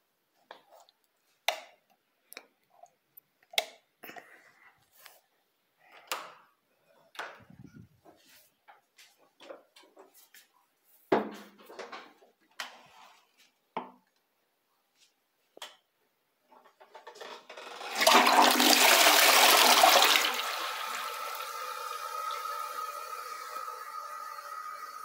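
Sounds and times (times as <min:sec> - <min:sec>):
toilet tank refilling: 0:17.4 - 0:25.0
toilet flushing: 0:17.5 - 0:25.0.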